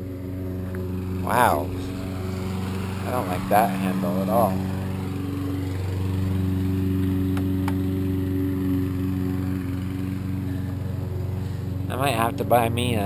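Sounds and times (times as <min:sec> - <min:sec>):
engine running with low hum: 0:00.0 - 0:13.0.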